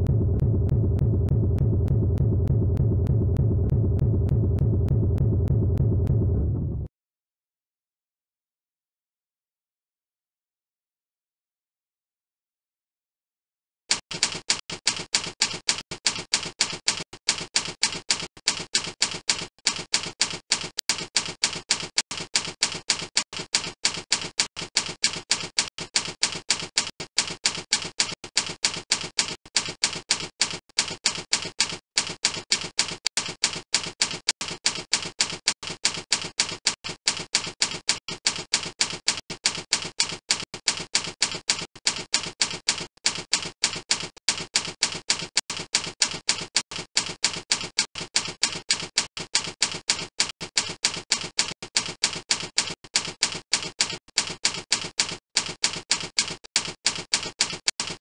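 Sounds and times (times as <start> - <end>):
typewriter key clicks: 13.9 - 58.0.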